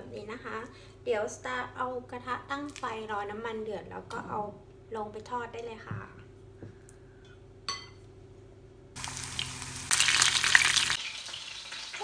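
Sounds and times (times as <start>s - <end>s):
spoon clinking glass bowl: 7.7s - 8.0s
chicken sizzling in oil: 9.0s - 12.0s.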